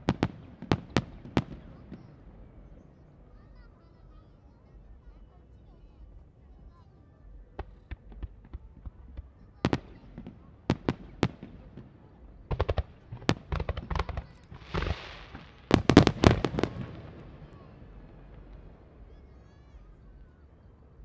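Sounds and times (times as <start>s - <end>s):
fireworks bursting with bangs: 0.0s - 3.7s, 7.4s - 19.5s
fireworks hiss: 12.5s - 18.7s.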